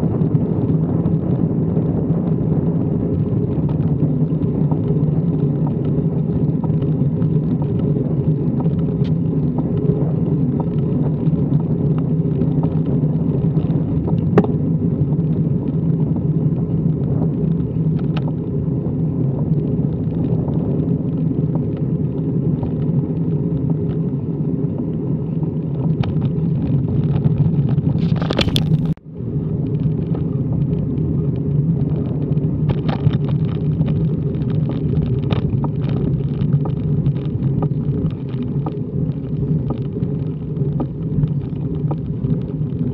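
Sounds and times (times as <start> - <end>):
wind rushing over microphone: 0.0 - 42.9
tyres rumbling on tarmac: 29.8 - 42.9.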